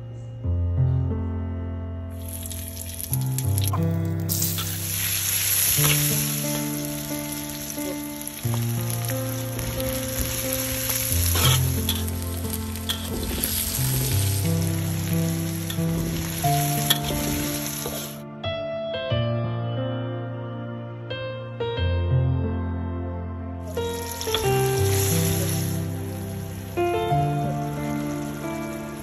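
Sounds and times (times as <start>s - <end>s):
soft background music: 0.0s - 29.0s
food sizzling in hot oil: 2.2s - 18.2s, 23.7s - 29.0s.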